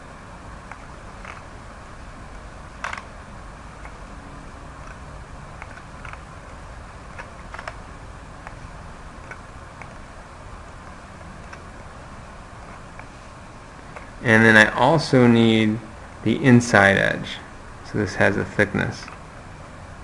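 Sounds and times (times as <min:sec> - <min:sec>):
low background hum: 0:00.0 - 0:20.0
computer mouse clicking: 0:00.6 - 0:01.5, 0:02.3 - 0:03.1, 0:04.8 - 0:05.0, 0:05.6 - 0:07.8, 0:08.4 - 0:08.6, 0:09.2 - 0:10.1, 0:11.4 - 0:11.7.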